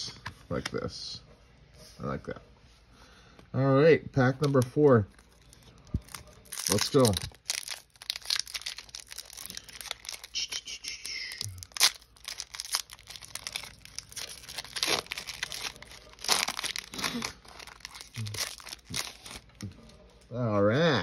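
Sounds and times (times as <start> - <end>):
foil wrapper tearing and crinkling: 4.5 - 19.6.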